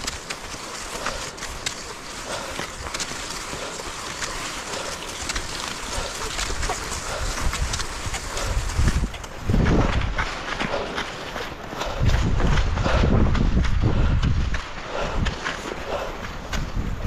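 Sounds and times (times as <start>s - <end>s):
crunching on snow: 0.0s - 17.0s
wind on microphone: 4.8s - 11.0s, 11.8s - 17.0s.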